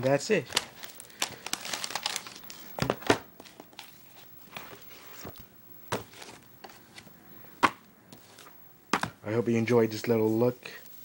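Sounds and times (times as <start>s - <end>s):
books knocking on wooden table: 5.9s - 6.3s, 7.6s - 7.8s, 8.9s - 9.2s.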